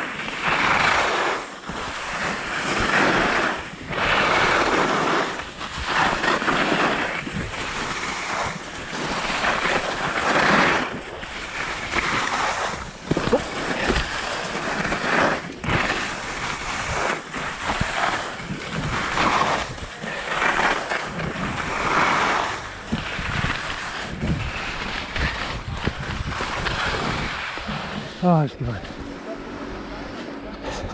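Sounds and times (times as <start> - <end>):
skis scraping on snow: 0.0 - 30.9
wind buffeting microphone: 6.8 - 10.2, 10.8 - 30.9.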